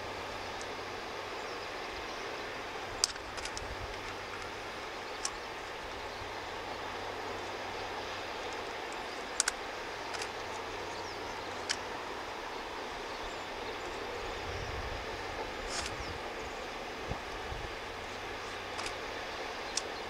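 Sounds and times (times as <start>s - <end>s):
distant diesel locomotive rumble: 0.0s - 20.0s
open-air noise: 0.0s - 20.0s
sharp clicks: 3.0s - 4.5s, 5.2s - 5.5s, 8.5s - 10.5s, 11.5s - 11.9s, 15.7s - 16.1s, 18.7s - 19.0s, 19.7s - 20.0s.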